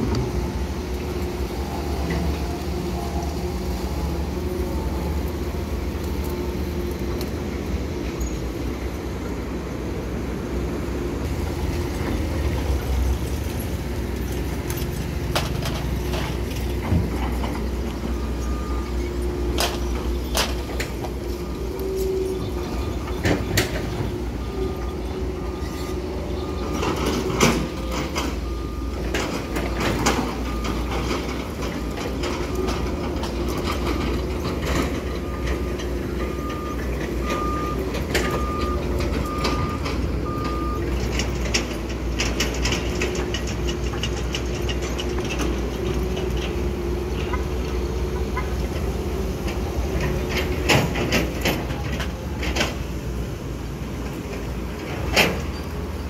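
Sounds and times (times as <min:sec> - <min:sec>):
diesel engines rumbling: 0:00.0 - 0:56.0
faint beeping: 0:17.6 - 0:31.3.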